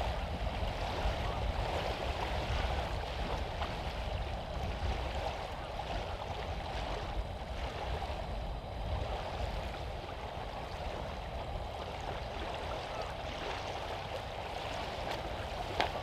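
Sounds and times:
wind buffeting microphone: 0:00.0 - 0:16.0
waves lapping on shingle: 0:09.0 - 0:16.0.

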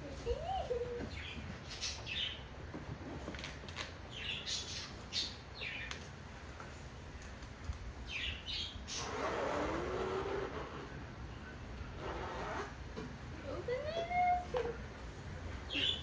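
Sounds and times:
birds chirping and squawking: 0:00.3 - 0:06.1, 0:08.0 - 0:12.9, 0:15.6 - 0:16.0
zipper on fabric case: 0:09.0 - 0:11.0, 0:12.0 - 0:12.8.

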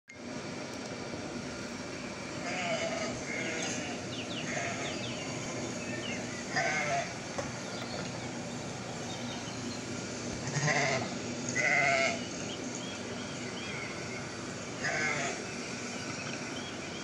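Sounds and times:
steady background hiss: 0:00.1 - 0:17.0
goat bleating: 0:02.4 - 0:05.0, 0:06.5 - 0:07.2, 0:10.4 - 0:12.2, 0:14.8 - 0:15.4.

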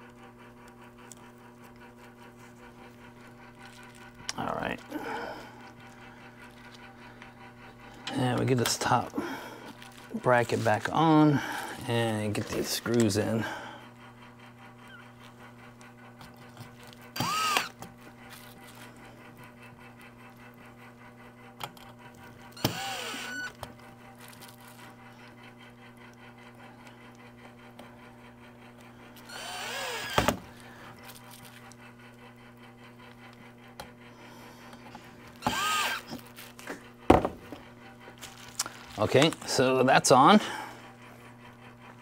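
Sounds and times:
cordless drill motor whine: 0:12.9 - 0:19.2, 0:21.7 - 0:36.8.

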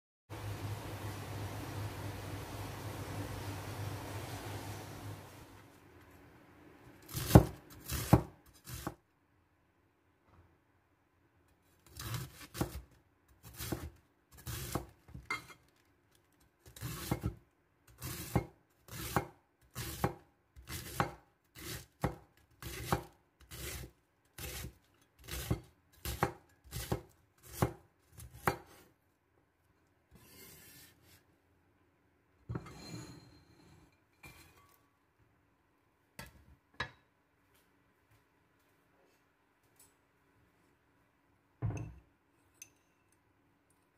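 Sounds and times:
knife slicing cabbage on board: 0:07.1 - 0:09.0, 0:11.8 - 0:15.3, 0:16.6 - 0:17.4, 0:18.0 - 0:28.9.

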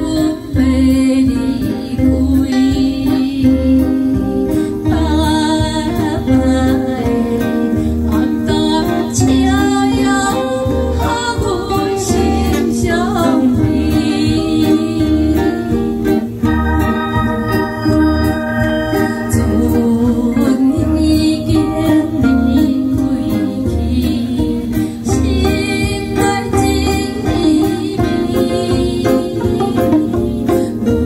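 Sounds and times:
guitar: 0:00.0 - 0:31.0
woman singing into microphone: 0:00.0 - 0:31.0
steady low beat: 0:10.7 - 0:31.0.

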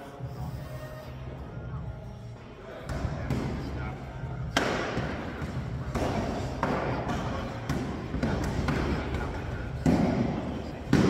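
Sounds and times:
echoing thumps: 0:02.8 - 0:11.0.

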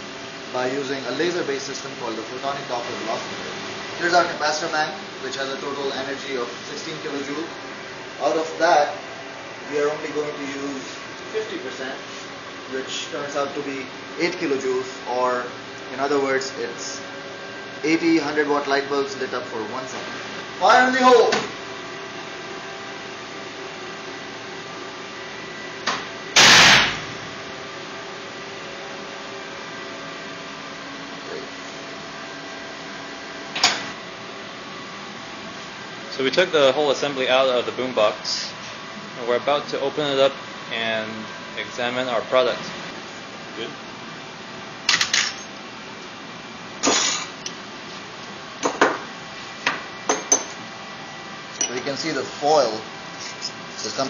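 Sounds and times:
electrical hum: 0:00.0 - 0:54.0
loud bang of foil vaporizing: 0:26.4 - 0:27.1.

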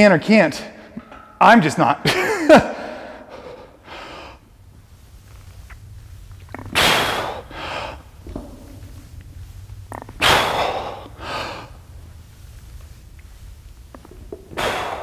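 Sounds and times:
man breathing forcefully: 0:06.8 - 0:08.2, 0:10.2 - 0:11.9, 0:14.5 - 0:15.0.

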